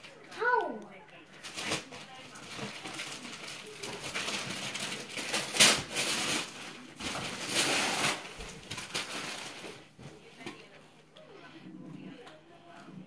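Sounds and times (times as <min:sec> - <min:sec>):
wrapping paper tearing and rustling: 0:01.3 - 0:10.0.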